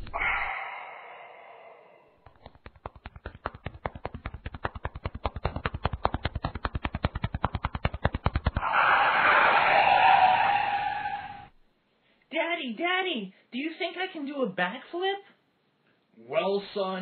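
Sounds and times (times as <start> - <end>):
person exhaling smoke: 0.0 - 2.2
cartoon footstep clicks: 2.2 - 8.6.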